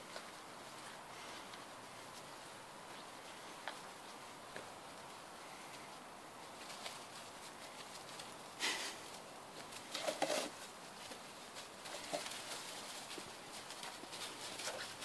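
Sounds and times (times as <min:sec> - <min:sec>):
puppies rustling through leaves: 0:00.0 - 0:15.0
small paws pattering on soil: 0:00.0 - 0:15.0.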